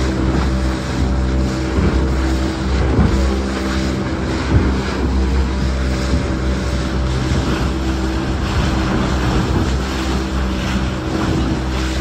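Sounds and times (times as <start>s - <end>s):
motorboat engine running: 0.0s - 12.0s
water rushing past hull: 0.0s - 12.0s.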